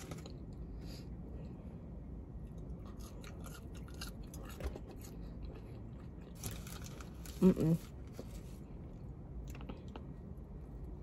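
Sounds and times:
person chewing food: 0.0s - 7.3s.

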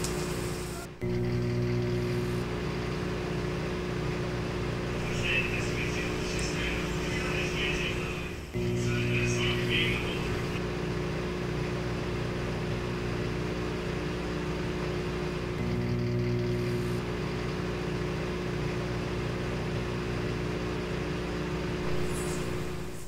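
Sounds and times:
low machine hum: 0.0s - 23.0s.

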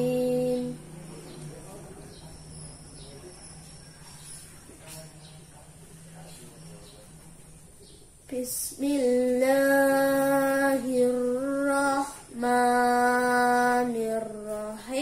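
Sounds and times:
boy chanting recitation: 0.0s - 1.4s, 8.3s - 15.0s.

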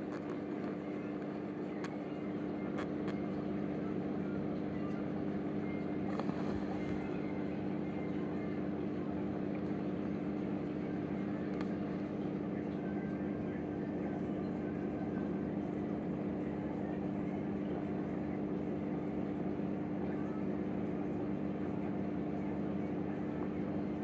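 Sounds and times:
faint clicks: 0.0s - 3.4s, 11.2s - 12.2s
aquarium pump humming: 0.0s - 24.0s.

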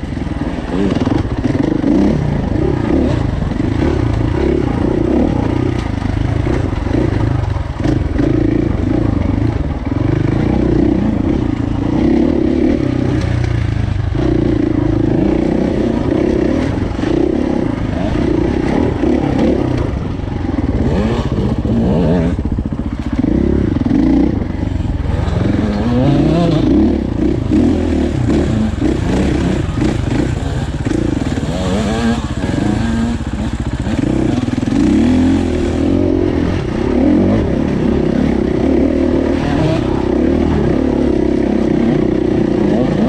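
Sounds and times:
dirt bike engine revving: 0.0s - 43.0s.

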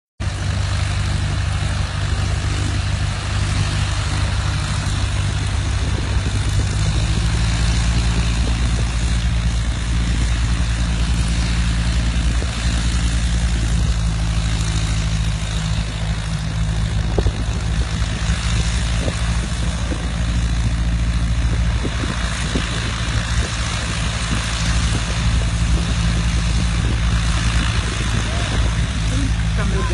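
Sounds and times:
engine running steadily: 0.2s - 29.9s.

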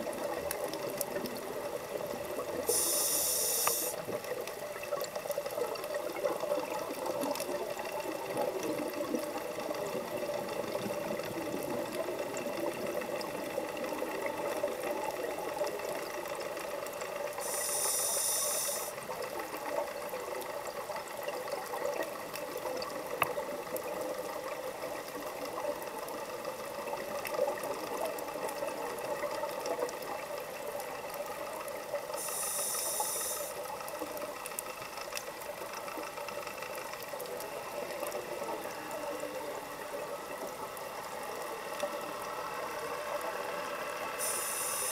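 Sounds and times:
regulator bubbling hiss: 0.0s - 20.6s, 31.8s - 36.8s, 41.1s - 44.9s
faint clicks: 0.0s - 43.5s
underwater background hum: 0.0s - 44.9s.

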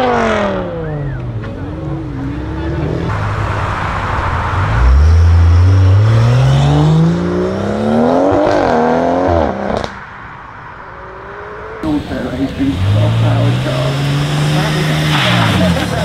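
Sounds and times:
car engine accelerating hard: 0.0s - 10.0s, 10.9s - 16.0s.

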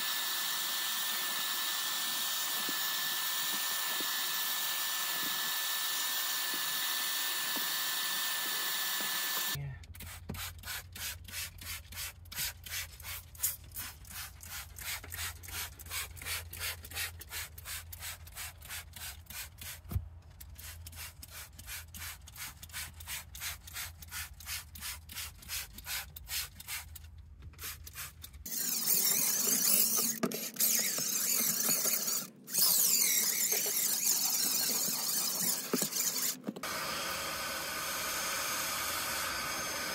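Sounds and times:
drill brush spinning on carpet: 0.0s - 9.6s, 28.5s - 39.9s
vacuum sucking on carpet: 0.0s - 9.6s, 28.5s - 39.9s.

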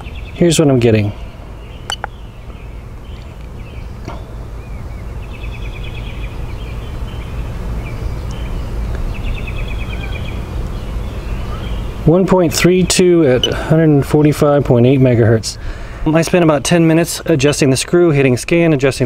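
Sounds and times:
bird trilling: 1.1s - 4.0s, 4.6s - 14.4s.

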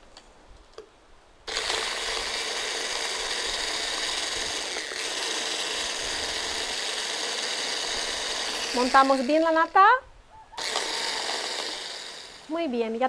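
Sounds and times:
immersion blender motor running: 1.5s - 10.0s, 10.6s - 12.6s.

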